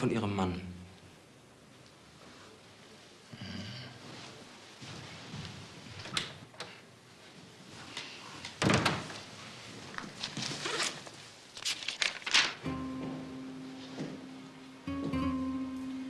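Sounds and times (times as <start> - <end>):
papers rustling: 7.8 - 12.7.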